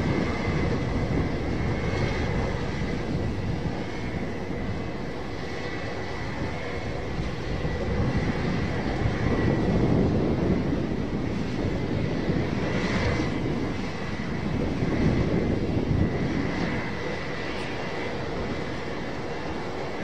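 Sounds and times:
jet engines idling: 0.0 - 20.0.

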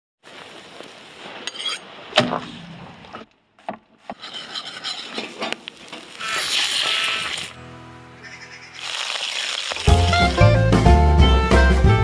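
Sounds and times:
meat hissing on grill: 6.1 - 7.5, 8.6 - 10.0.

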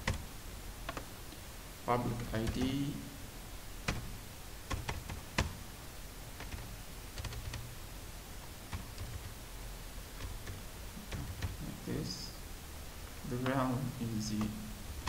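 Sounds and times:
keyboard typing: 0.0 - 0.3, 2.1 - 2.9, 3.8 - 5.6, 6.4 - 7.7, 8.7 - 9.4, 10.1 - 11.8
low steady hum: 0.0 - 15.0.

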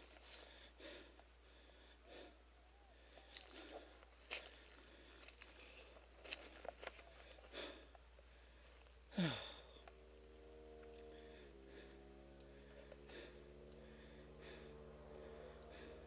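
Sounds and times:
brush and twigs rustling: 0.0 - 0.7, 3.0 - 9.0
faint steady hum: 0.0 - 16.0
person sniffing and breathing: 0.0 - 16.0.

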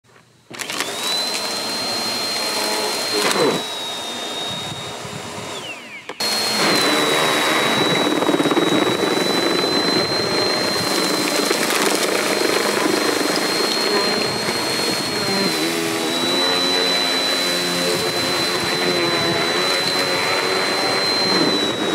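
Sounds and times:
vacuum cleaner whining: 0.5 - 21.9.

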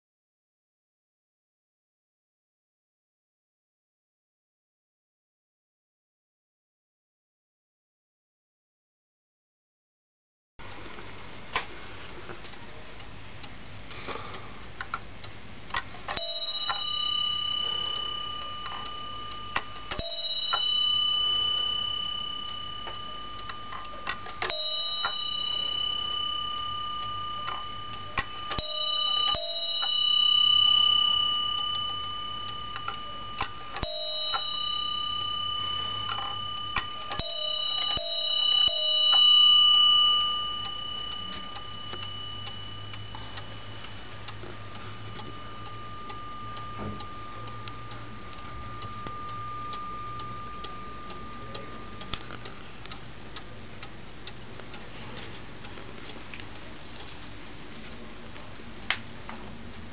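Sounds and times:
clock ticking: 14.6 - 57.4
clock bell striking: 16.1 - 53.5.

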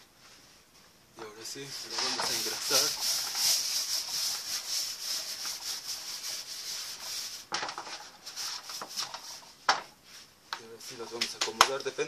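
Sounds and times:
hand rubbing metal baking tray: 1.4 - 9.7.

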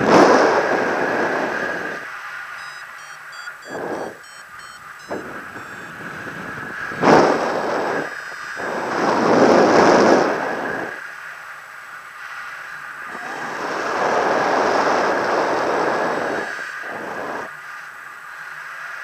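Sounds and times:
short high beeps: 2.6 - 8.8.

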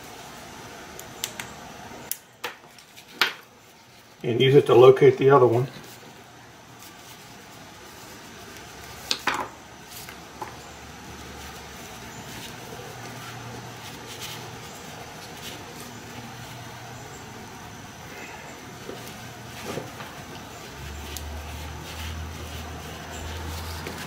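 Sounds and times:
collar webbing handled: 18.6 - 24.0.

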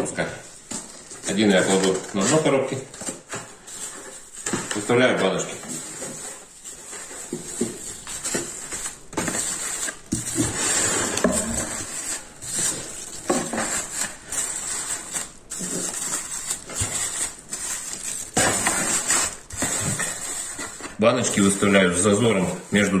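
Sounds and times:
plastic crinkling: 0.0 - 23.0.

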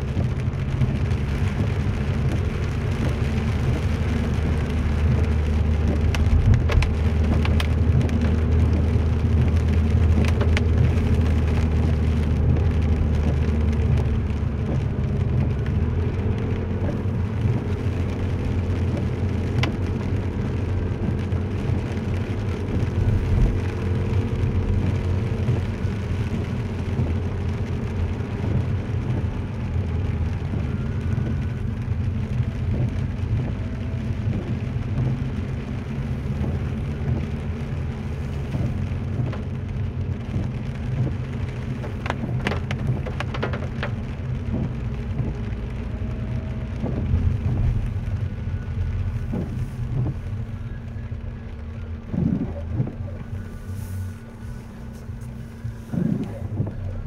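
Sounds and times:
car engine drone: 0.0 - 57.0
tyre hiss on wet road: 48.8 - 52.5, 53.2 - 57.0.

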